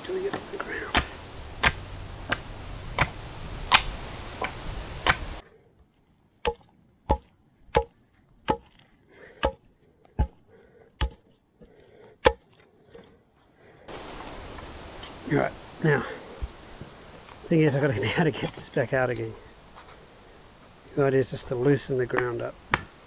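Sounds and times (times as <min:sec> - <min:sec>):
background hiss: 0:00.0 - 0:05.4, 0:13.6 - 0:23.0
machete chopping wood: 0:00.9 - 0:05.2, 0:06.4 - 0:08.8, 0:09.4 - 0:09.6, 0:10.2 - 0:10.4, 0:11.0 - 0:11.3, 0:12.2 - 0:12.5, 0:22.7 - 0:22.9.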